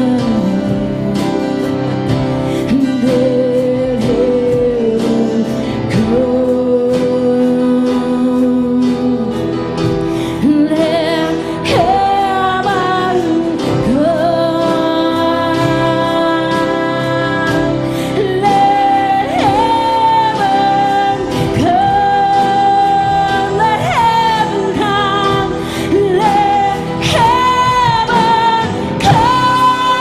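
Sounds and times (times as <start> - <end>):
live worship band playing: 0.0 - 30.0.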